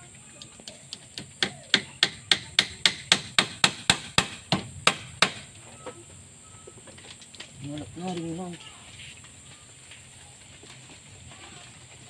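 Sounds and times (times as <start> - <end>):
hammer striking nail into wood: 0.9 - 5.5.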